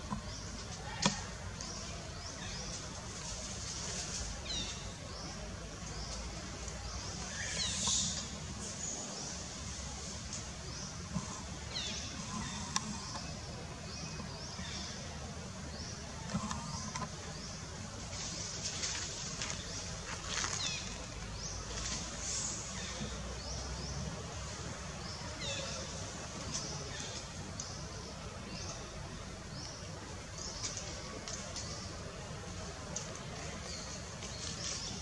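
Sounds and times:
low rumble and hiss: 0.0s - 35.0s
small birds chirping: 0.0s - 35.0s
faint clicks: 26.5s - 27.8s, 30.4s - 31.8s.

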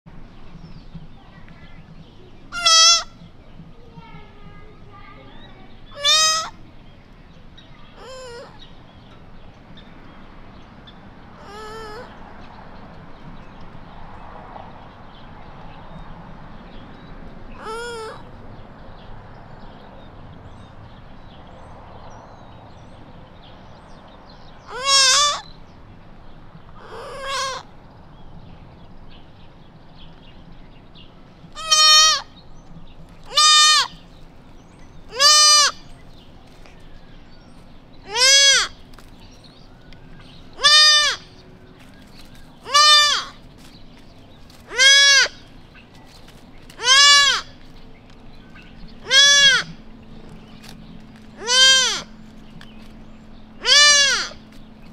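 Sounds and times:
fawn bleating: 2.5s - 3.1s, 6.0s - 6.6s, 24.7s - 25.4s, 26.8s - 27.6s, 31.6s - 32.3s, 33.3s - 34.0s, 35.1s - 35.8s, 38.1s - 38.8s, 40.6s - 41.3s, 42.6s - 43.4s, 44.7s - 45.4s, 46.8s - 47.5s, 49.0s - 49.8s, 51.4s - 52.1s, 53.6s - 54.4s.

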